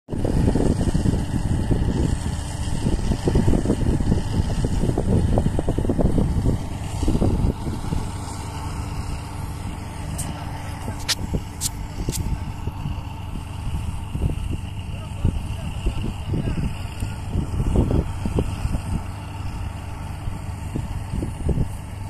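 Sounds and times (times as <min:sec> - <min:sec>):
combine harvester rumbling: 0:00.1 - 0:22.0.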